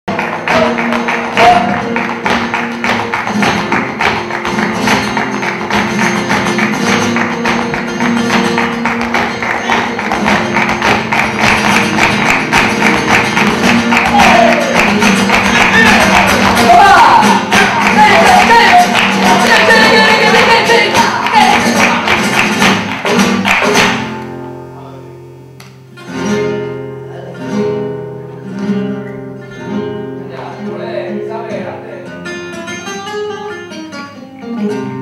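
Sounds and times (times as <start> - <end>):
rhythmic hand clapping: 0.1 - 24.4
flamenco guitar: 0.1 - 35.0.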